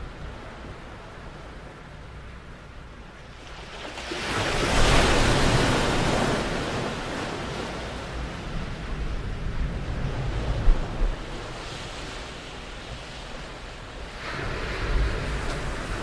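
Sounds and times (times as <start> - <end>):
wind rumble on microphone: 0.0 - 16.0
ocean surf washing ashore: 3.2 - 16.0.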